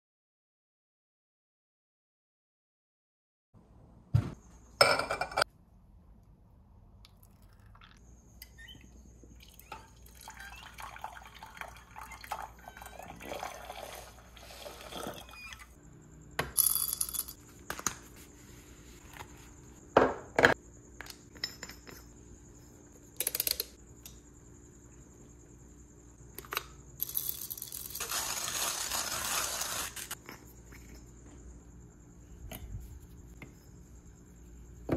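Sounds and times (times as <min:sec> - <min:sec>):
hot water pouring: 0:09.4 - 0:15.4
clinks of glass and metal: 0:21.3 - 0:22.1.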